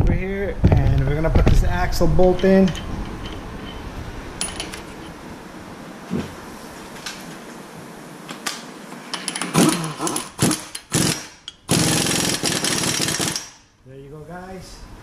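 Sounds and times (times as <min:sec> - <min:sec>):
impact gun rattling and hammering: 0:09.1 - 0:13.6.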